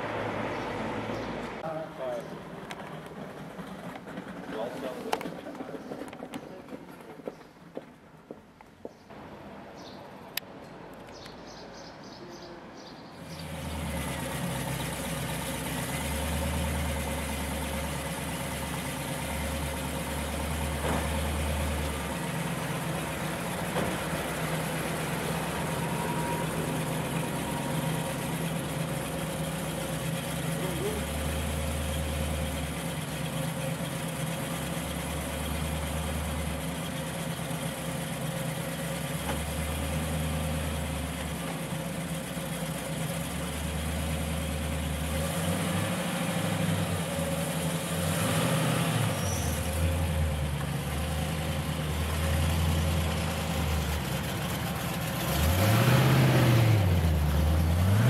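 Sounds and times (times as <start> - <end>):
car engine idling rumble: 0.4 - 6.8, 13.2 - 45.4, 49.1 - 55.6.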